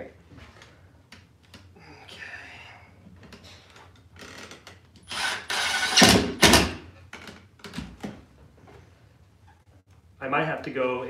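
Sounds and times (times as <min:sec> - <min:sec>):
cordless drill driving screw: 0:05.1 - 0:06.7.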